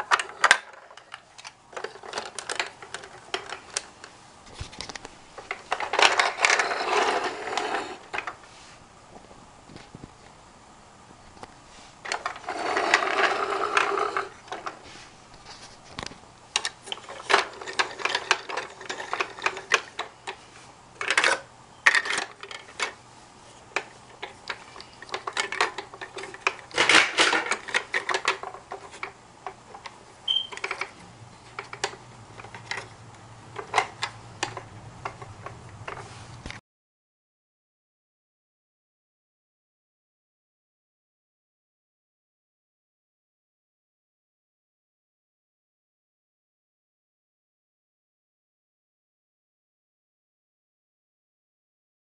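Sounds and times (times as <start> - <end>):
plastic toy parts clattering: 0.0 - 3.9, 4.5 - 8.3, 12.0 - 14.8, 15.5 - 20.4, 21.0 - 23.0, 23.7 - 32.9, 33.6 - 36.1
toy drill whirring: 5.9 - 8.3, 12.1 - 14.7.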